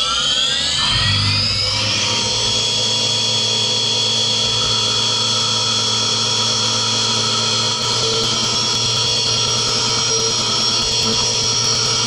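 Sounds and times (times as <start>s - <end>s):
milling machine whine: 0.0s - 12.0s.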